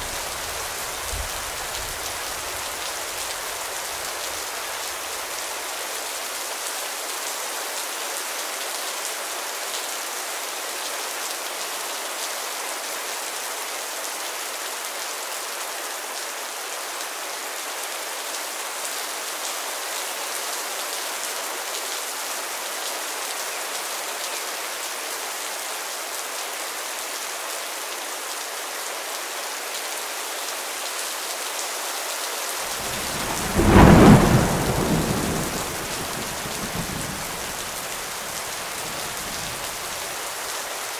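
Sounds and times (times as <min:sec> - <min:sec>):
steady rain: 0:00.0 - 0:40.9
thunder clap rumbling: 0:32.7 - 0:39.6.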